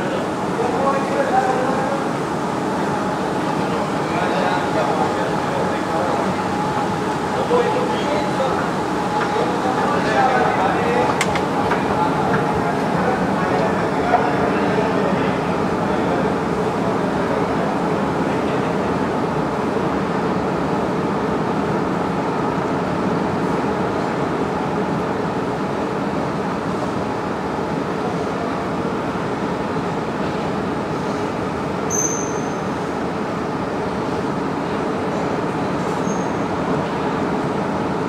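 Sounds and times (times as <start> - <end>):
high squeak: 31.9 - 32.6.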